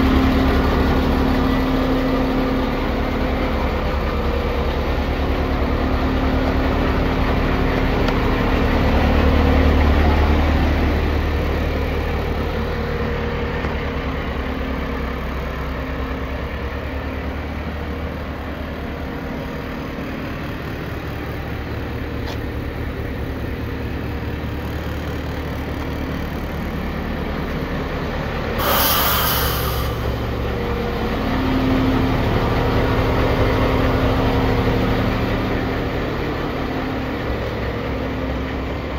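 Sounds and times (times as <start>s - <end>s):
diesel truck engine idling: 0.0s - 38.9s
sharp air hiss: 28.6s - 30.5s.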